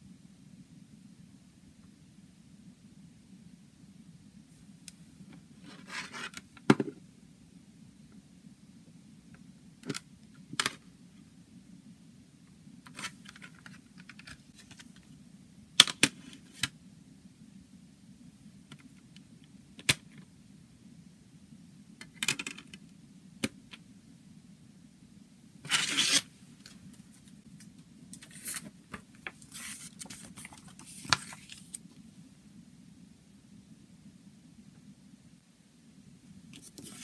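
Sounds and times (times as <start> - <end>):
faint low hum: 0.0 - 37.0
paper booklet rustling: 28.2 - 31.8, 36.6 - 37.0.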